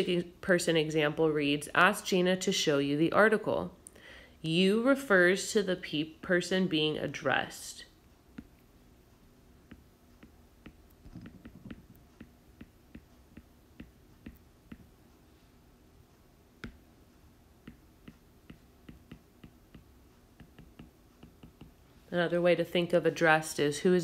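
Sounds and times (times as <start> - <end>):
stylus tapping on glass screen: 9.7 - 14.9, 16.6 - 16.8, 17.6 - 21.8.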